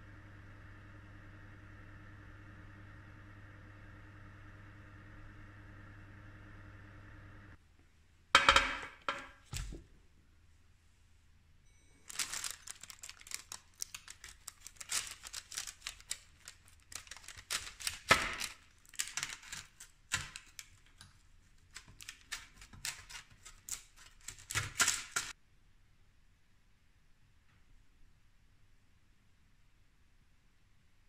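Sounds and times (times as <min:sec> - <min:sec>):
pizza cutter crunching through crust: 0:12.1 - 0:25.3.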